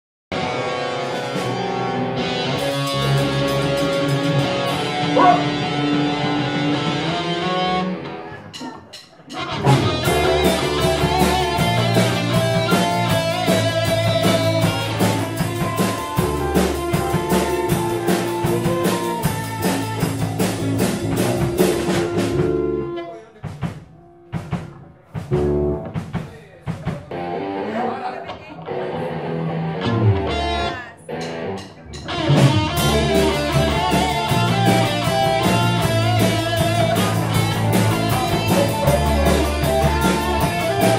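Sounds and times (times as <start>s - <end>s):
electric guitar notes: 0.3s - 8.3s, 9.3s - 23.2s, 27.1s - 40.9s
rock band playing: 0.3s - 40.9s
steady drum beat: 3.0s - 5.8s, 8.5s - 27.3s, 31.2s - 40.9s.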